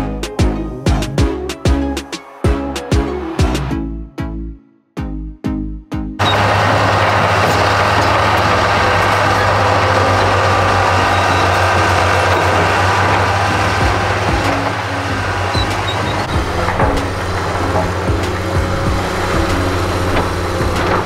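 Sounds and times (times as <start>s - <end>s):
bulldozer diesel engine droning: 6.2s - 21.0s
knocks and clanks: 6.2s - 21.0s.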